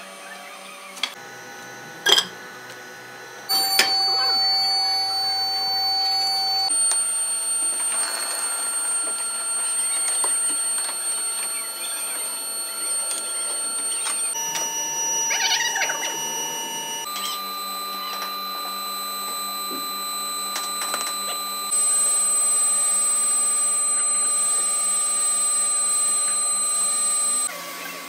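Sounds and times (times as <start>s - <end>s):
furnace blower whine: 1.2s - 27.6s
sharp clicks: 3.5s - 15.6s.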